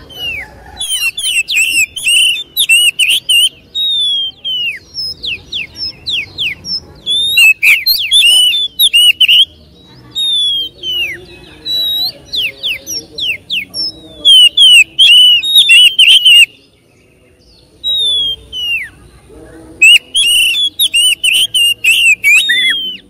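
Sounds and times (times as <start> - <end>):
bird chattering warbles: 0.0 - 9.5, 19.8 - 23.0
bird singing whistled notes: 0.0 - 19.0, 19.8 - 23.0.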